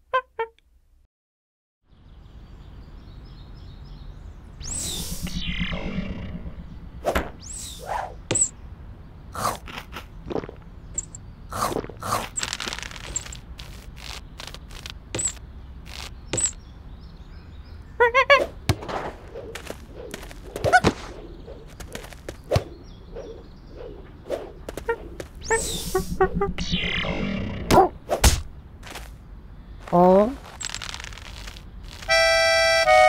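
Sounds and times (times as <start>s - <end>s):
cartoon whooshes: 23.2s - 28.5s.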